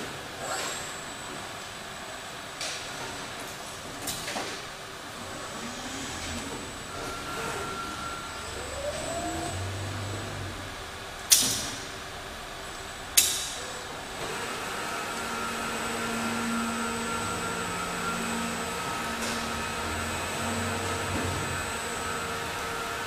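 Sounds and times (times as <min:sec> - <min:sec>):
hum of motors and conveyors: 0:00.0 - 0:23.0
robot whine: 0:05.4 - 0:10.8.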